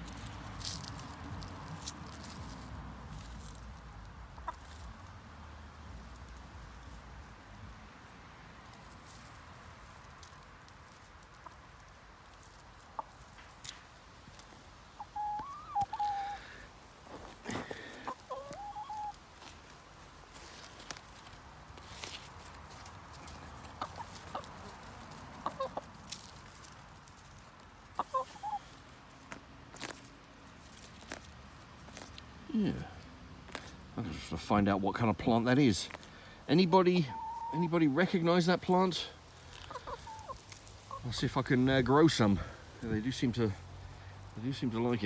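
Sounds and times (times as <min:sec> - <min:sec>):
hen clucking: 0:04.0 - 0:04.9, 0:12.7 - 0:13.8, 0:15.0 - 0:16.6, 0:17.7 - 0:19.2, 0:23.2 - 0:26.0, 0:27.8 - 0:28.8, 0:36.5 - 0:43.3.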